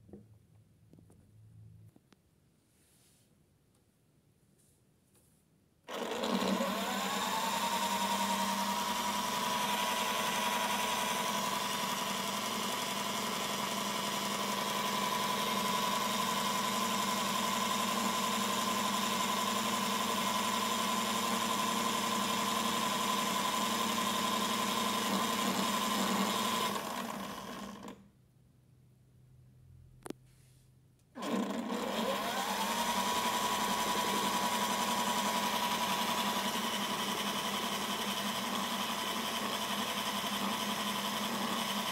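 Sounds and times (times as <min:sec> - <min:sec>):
small electric motor whining: 0:05.9 - 0:28.0, 0:31.2 - 0:41.9.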